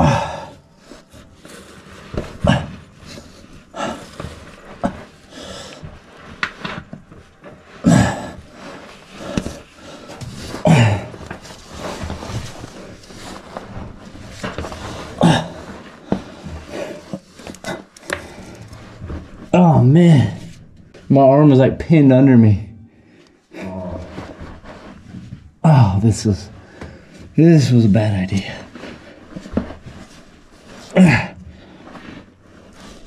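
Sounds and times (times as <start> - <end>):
man grunting with effort: 10.7 - 11.2.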